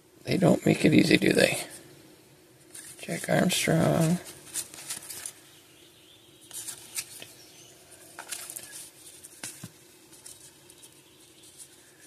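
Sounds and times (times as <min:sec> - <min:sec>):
faint steady hum: 0:00.0 - 0:12.0
cards shuffled by hand: 0:02.7 - 0:05.4, 0:06.5 - 0:07.4, 0:08.0 - 0:12.0.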